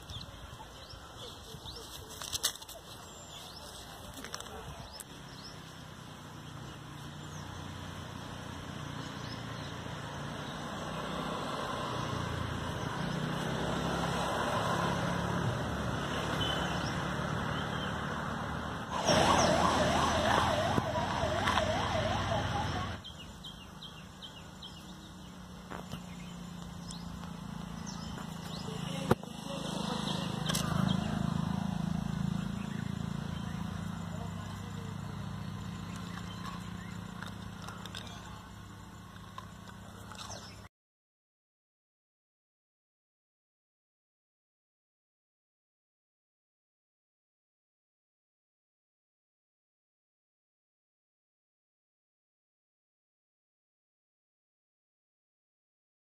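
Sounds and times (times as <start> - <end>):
warbling siren-like tone: 18.9 - 23.0.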